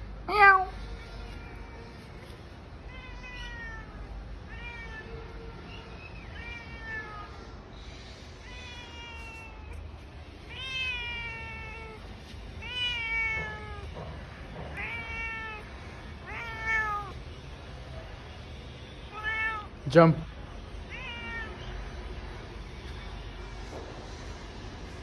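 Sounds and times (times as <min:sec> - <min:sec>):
cat meowing: 0:00.3 - 0:02.1, 0:02.8 - 0:07.6, 0:08.4 - 0:09.9, 0:10.5 - 0:14.0, 0:14.7 - 0:17.2, 0:19.1 - 0:19.8, 0:20.9 - 0:21.8.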